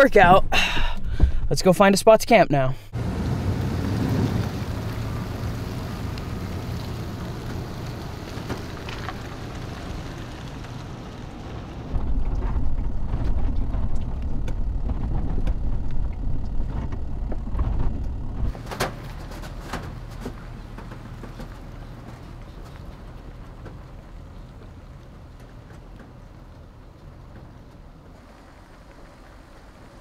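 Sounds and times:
engine and tyres rumbling: 0:02.9 - 0:30.0
truck pulling away: 0:03.0 - 0:30.0
rattles and knocks: 0:11.9 - 0:28.0.

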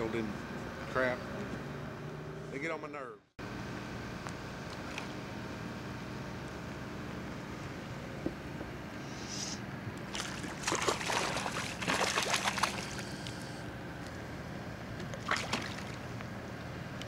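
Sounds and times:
fish splashing at water surface: 0:10.1 - 0:13.6, 0:15.1 - 0:16.1.

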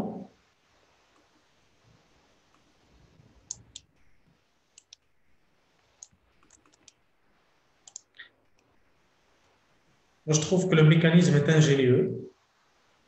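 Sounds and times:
computer mouse clicking: 0:03.4 - 0:03.9, 0:04.7 - 0:05.1, 0:05.8 - 0:07.0, 0:07.8 - 0:08.7.

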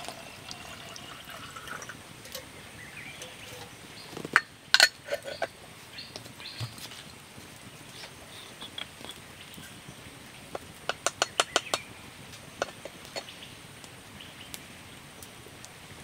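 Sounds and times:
faint bird chirps: 0:02.7 - 0:04.2
small objects clicking and tapping: 0:08.5 - 0:09.8, 0:10.5 - 0:11.9.

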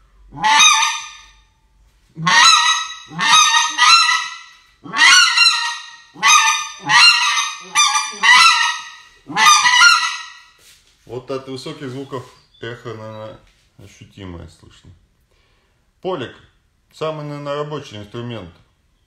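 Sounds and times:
goose call honks: 0:00.3 - 0:01.4, 0:02.2 - 0:10.6.

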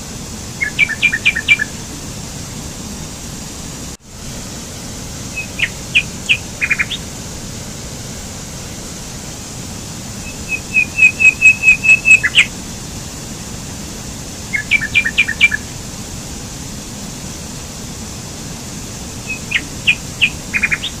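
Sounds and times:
small waterfall over rocks: 0:00.0 - 0:21.0
songbird chirping: 0:00.6 - 0:01.7, 0:05.3 - 0:07.0, 0:10.2 - 0:12.5, 0:14.5 - 0:15.6, 0:19.2 - 0:21.0.

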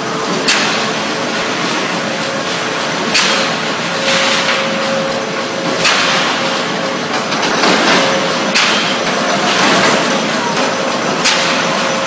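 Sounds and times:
concrete mixer pump running: 0:00.0 - 0:12.0
sharp clack: 0:00.4 - 0:01.0, 0:03.1 - 0:12.0.

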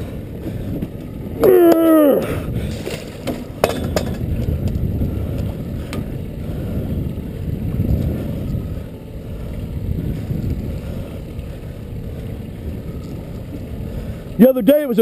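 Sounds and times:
wind rumbling on microphone: 0:00.0 - 0:15.0.

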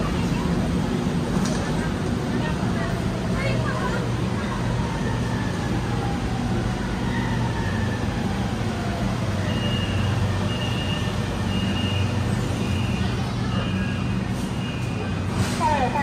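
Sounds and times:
low train hum and rumble: 0:00.0 - 0:16.0
short high warning beeps: 0:09.5 - 0:14.0.

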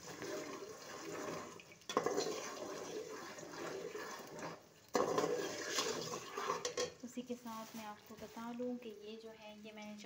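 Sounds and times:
spoon scraping steel pot: 0:01.9 - 0:07.0.

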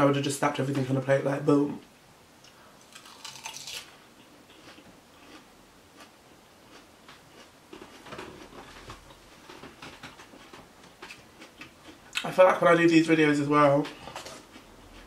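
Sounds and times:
person chewing food: 0:02.4 - 0:12.2, 0:13.9 - 0:15.0.

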